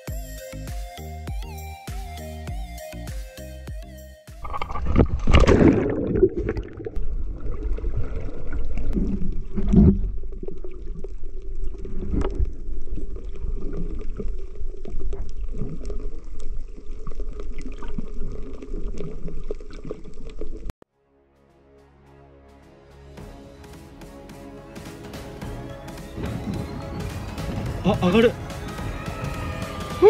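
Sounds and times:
muffled underwater rumbling and gurgling: 0:04.4 - 0:20.7
water splash: 0:04.4 - 0:20.7.

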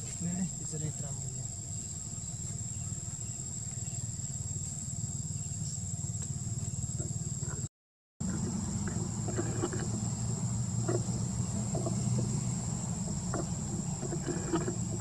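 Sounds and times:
high-pitched insect drone: 0:00.0 - 0:15.0
low steady rumble: 0:00.0 - 0:15.0.

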